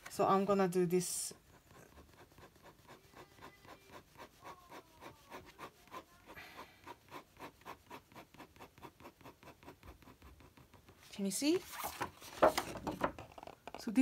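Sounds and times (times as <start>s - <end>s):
pen scratching on paper: 1.0s - 11.4s.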